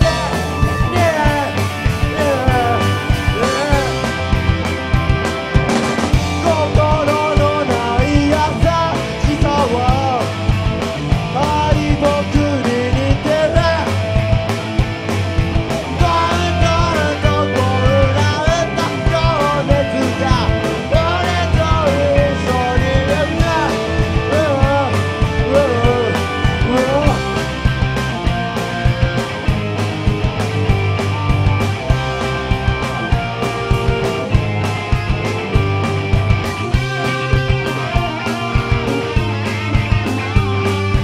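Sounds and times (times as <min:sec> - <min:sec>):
person singing: 0:00.0 - 0:04.2, 0:06.4 - 0:10.3, 0:15.9 - 0:27.5
rock band playing live: 0:00.0 - 0:41.0.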